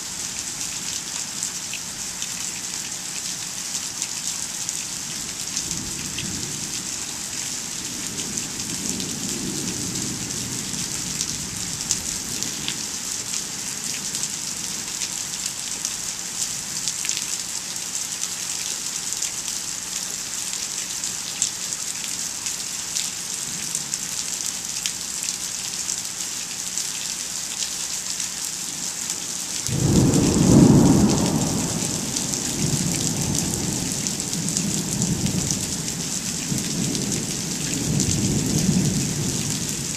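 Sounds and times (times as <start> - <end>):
rain falling: 0.0 - 39.9
rumble of thunder: 7.8 - 12.8, 29.7 - 39.9.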